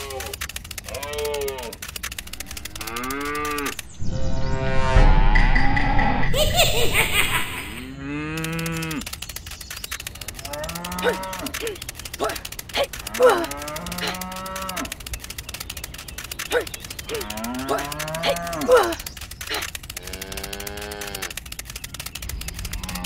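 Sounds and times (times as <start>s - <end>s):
short clicks: 0.0s - 4.0s, 7.7s - 23.0s
cow mooing: 2.7s - 3.8s, 7.8s - 9.0s, 10.5s - 11.5s, 13.1s - 14.9s, 17.2s - 18.7s, 20.0s - 21.3s.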